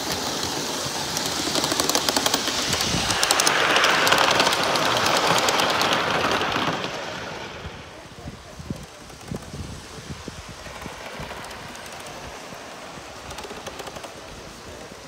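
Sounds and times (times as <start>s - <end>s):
rapid even clicking: 0.0s - 7.0s, 13.2s - 14.3s
model train wheels rolling on rails: 0.0s - 15.0s.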